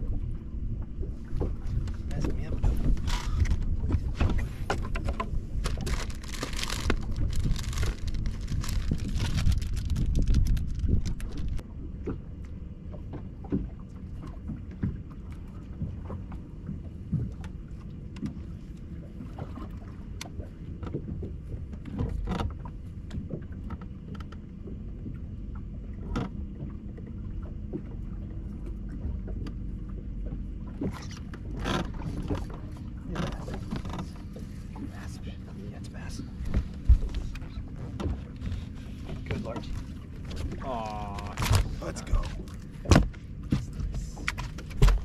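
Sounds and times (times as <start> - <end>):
water slapping against boat hull: 0.0 - 45.0
sharp knocks on boat: 1.2 - 7.1, 19.2 - 25.2, 36.4 - 45.0.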